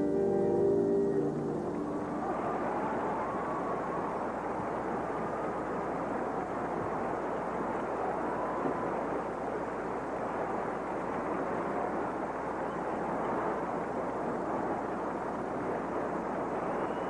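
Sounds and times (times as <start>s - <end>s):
crowd applauding and cheering: 1.2s - 9.5s.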